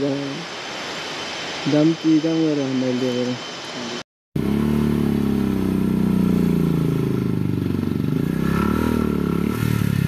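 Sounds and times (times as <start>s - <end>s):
motorcycle engine labouring: 4.4s - 10.0s.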